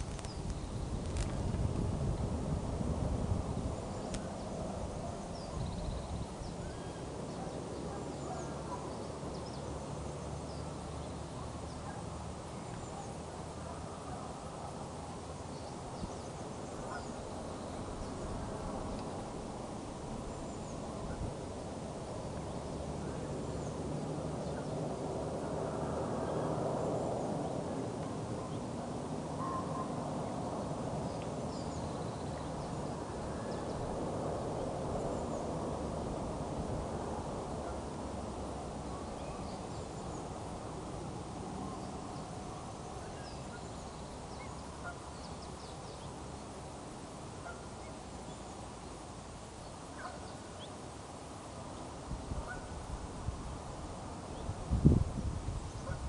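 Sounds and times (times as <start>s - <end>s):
steady rushing noise: 0.0s - 56.0s
faint bird calls: 15.6s - 19.2s, 29.4s - 30.0s, 41.6s - 46.1s, 49.9s - 50.8s, 52.4s - 52.8s, 55.7s - 56.0s.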